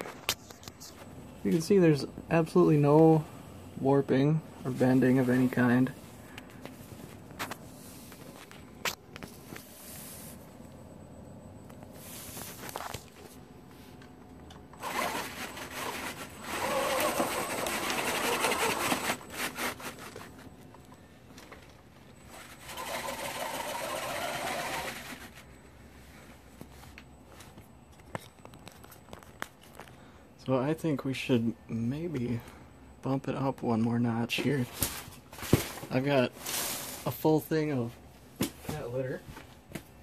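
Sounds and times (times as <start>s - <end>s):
small electric motor whirring: 14.8s - 20.2s, 22.3s - 25.4s.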